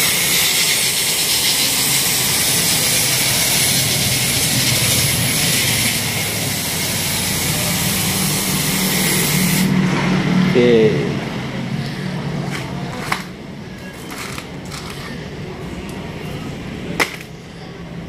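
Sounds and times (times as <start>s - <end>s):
spray hissing on chain: 0.0s - 9.7s.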